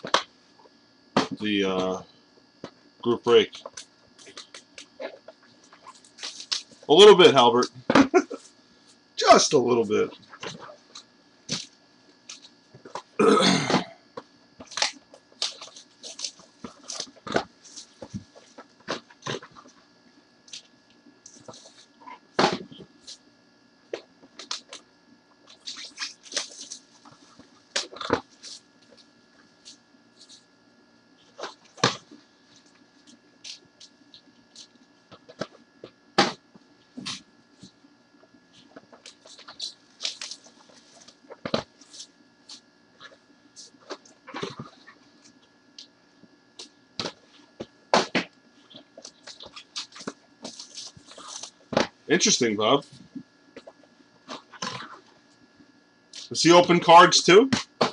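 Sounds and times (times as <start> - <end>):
faint steady hum: 0.0 - 57.9
cardboard and wrapping rustling: 49.2 - 51.8.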